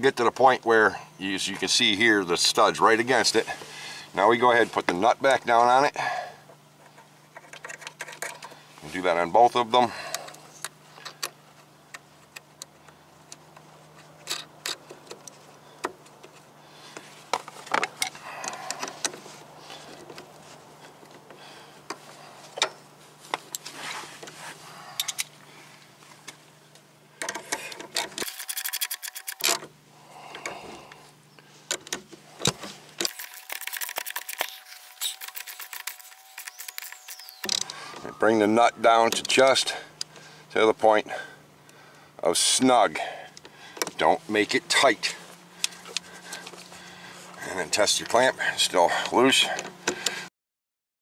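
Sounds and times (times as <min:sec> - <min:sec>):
metal parts and tools clinking: 0:27.2 - 0:29.7, 0:33.0 - 0:38.2.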